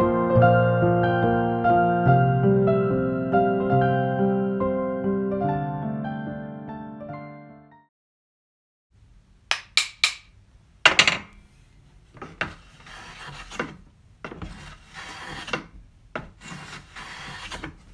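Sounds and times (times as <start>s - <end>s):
wood knocking on wood: 9.5s - 10.3s
hand tool rasping wood: 12.2s - 17.9s.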